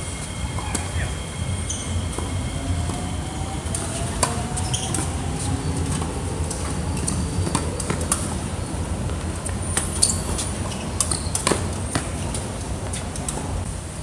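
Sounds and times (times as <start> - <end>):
shoe squeaks: 0.2 - 3.2, 3.9 - 6.0, 9.6 - 12.3.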